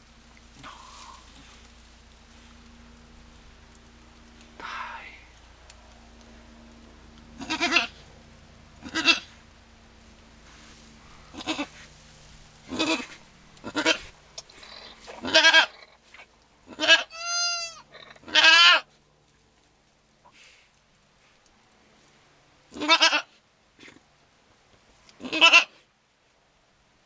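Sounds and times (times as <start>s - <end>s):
goats bleating: 7.4s - 8.0s, 8.8s - 9.4s, 11.3s - 11.9s, 12.6s - 16.0s, 16.7s - 18.9s, 22.7s - 23.3s, 25.2s - 25.8s.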